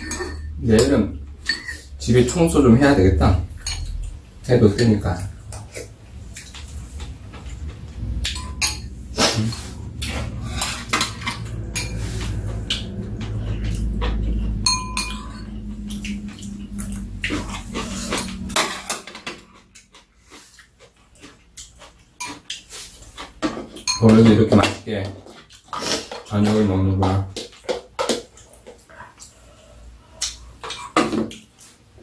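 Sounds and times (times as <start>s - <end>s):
low steady rumble: 0.0s - 19.0s
utensils clinking on ceramic bowls: 0.0s - 20.0s, 21.2s - 28.8s.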